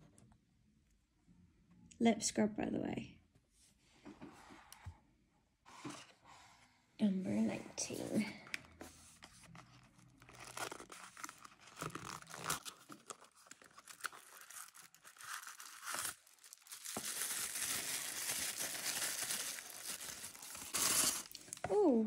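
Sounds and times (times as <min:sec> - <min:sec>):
cardboard box being opened: 0:08.8 - 0:21.3
tissue paper crinkling: 0:08.9 - 0:21.5.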